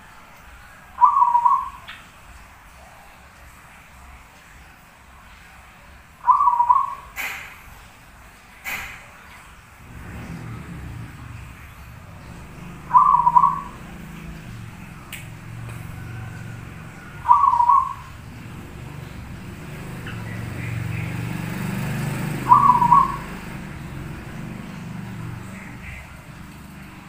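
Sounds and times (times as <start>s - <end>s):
dove cooing: 1.0s - 1.9s, 6.2s - 7.4s, 12.2s - 26.4s.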